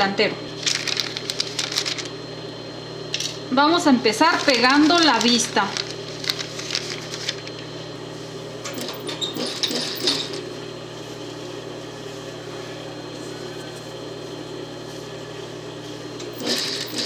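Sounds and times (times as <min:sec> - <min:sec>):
sewing machine humming: 0:00.6 - 0:02.1, 0:04.2 - 0:07.7, 0:08.7 - 0:10.5, 0:16.2 - 0:17.0
sewing machine stitching: 0:08.8 - 0:10.4, 0:16.3 - 0:17.0.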